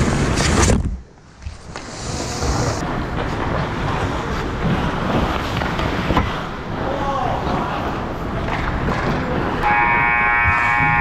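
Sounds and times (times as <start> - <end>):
skate blades scraping ice: 1.4 - 6.4.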